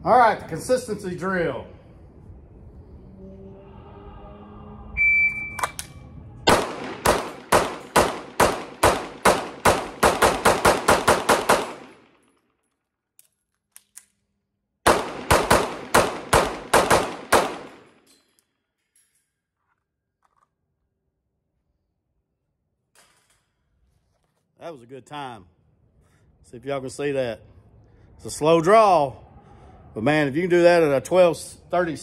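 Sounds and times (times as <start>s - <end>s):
shot timer beep: 5.0s - 5.8s
pistol firing rapid shots: 6.5s - 12.2s, 14.9s - 18.0s.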